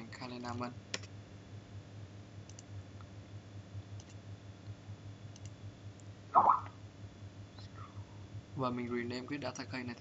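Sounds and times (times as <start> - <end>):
low steady hum: 0.0 - 10.0
computer mouse clicking: 0.9 - 1.1, 2.5 - 2.7, 4.0 - 4.2, 5.3 - 6.1.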